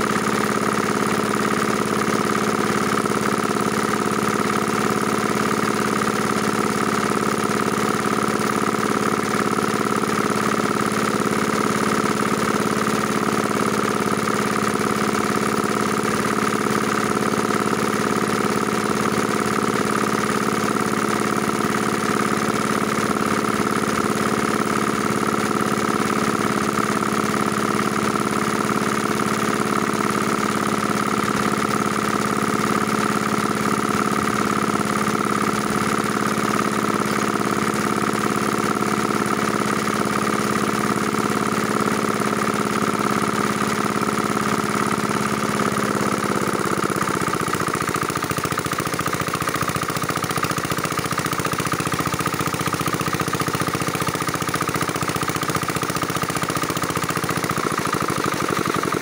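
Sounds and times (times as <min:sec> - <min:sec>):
small diesel engine running: 0:00.0 - 0:59.0.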